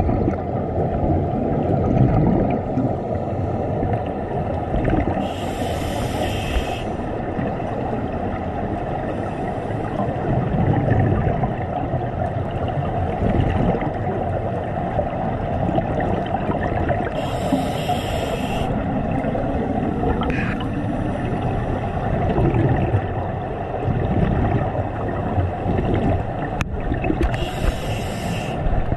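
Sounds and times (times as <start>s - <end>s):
low underwater rumble: 0.0s - 28.9s
regulator hissing inhale: 5.2s - 7.2s, 17.1s - 18.8s, 27.3s - 28.7s
bubbling exhalations: 16.5s - 20.8s.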